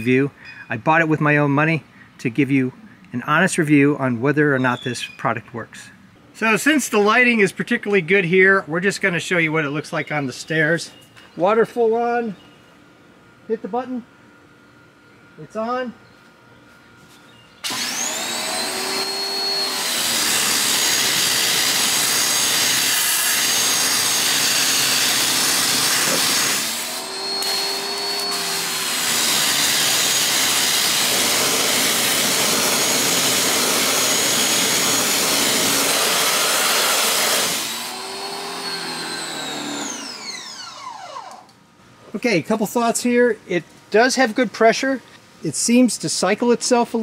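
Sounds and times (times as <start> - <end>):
pressure washer motor whine: 17.6 - 41.5
high-pressure water spray hissing: 18.0 - 37.4.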